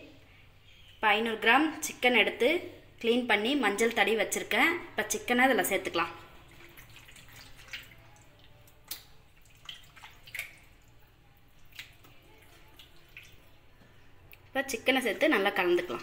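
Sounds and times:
wet taps and plops: 6.5 - 14.5.

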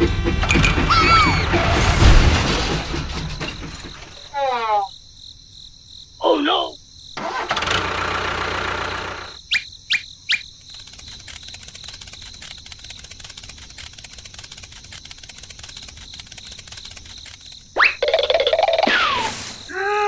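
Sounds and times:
small motor clattering: 7.2 - 9.4, 10.7 - 18.4
quick rising chirps: 9.3 - 19.7.

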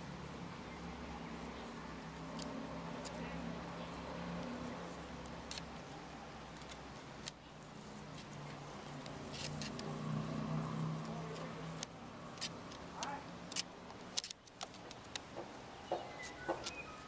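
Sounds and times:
beak tapping on wooden boards: 11.0 - 17.0.

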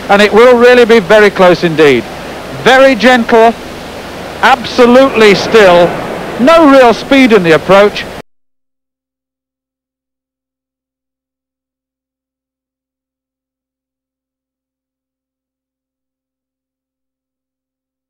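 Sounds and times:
faint steady hum: 0.0 - 8.2.

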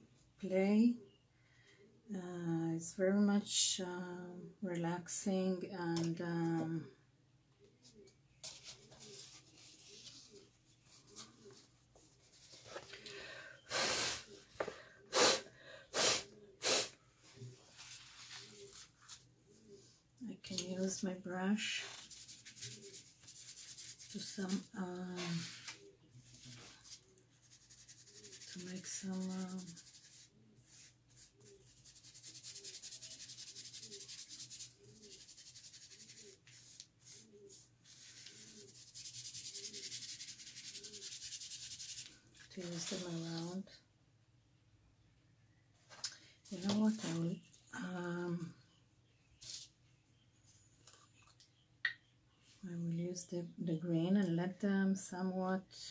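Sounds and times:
paintbrush scrubbing on paper: 21.6 - 43.3.

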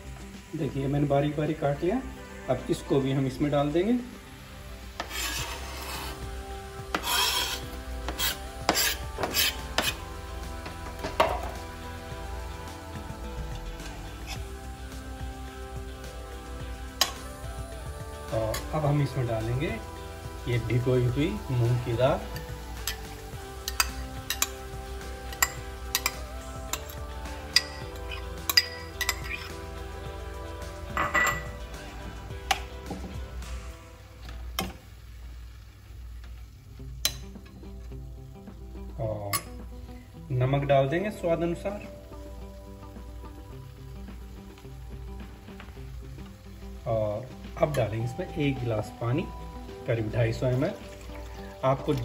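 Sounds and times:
faint background music: 0.0 - 52.0
knife scraping cutting board: 5.0 - 6.2, 6.9 - 10.0
spoon clinking against a cup: 25.3 - 29.5, 31.0 - 31.6.

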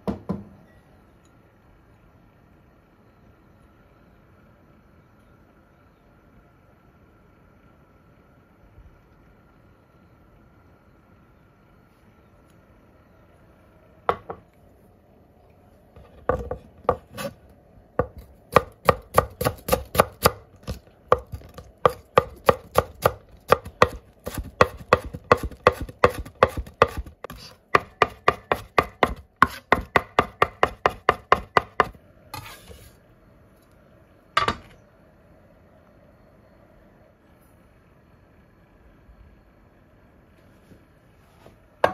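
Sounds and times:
knife scraping board: 16.0 - 17.4, 23.8 - 27.6, 28.5 - 29.9, 32.3 - 33.0
knife chopping on wooden board: 16.3 - 17.3, 18.0 - 32.5.

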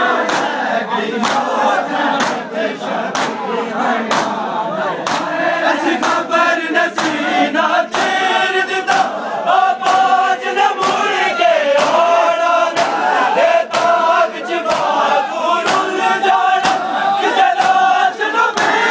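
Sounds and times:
men chanting in unison: 0.0 - 18.9
hands slapping chests: 0.2 - 0.6, 1.2 - 2.5, 3.1 - 3.4, 4.1 - 4.4, 5.0 - 6.3, 6.9 - 7.2, 7.9 - 8.2, 8.9 - 9.2, 9.8 - 10.2, 10.8 - 18.9.

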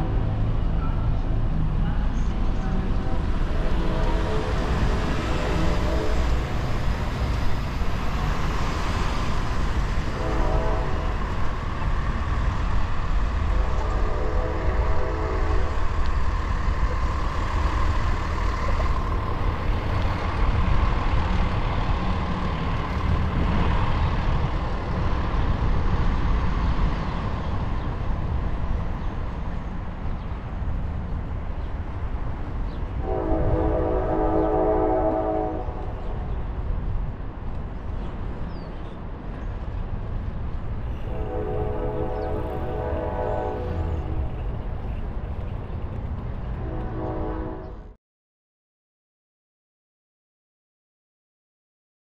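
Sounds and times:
train horn blasts: 2.6 - 6.8, 10.0 - 11.5, 13.5 - 15.9, 33.0 - 36.3, 40.9 - 44.4, 46.6 - 48.0.

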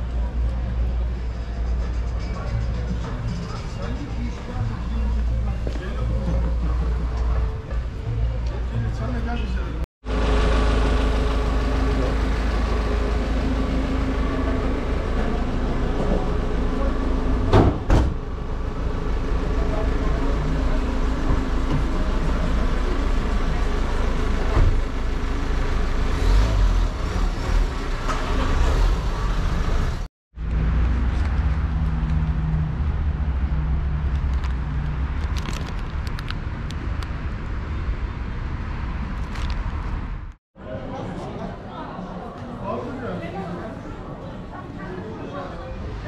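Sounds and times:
vehicle engine running: 10.0 - 17.5, 18.2 - 37.3.

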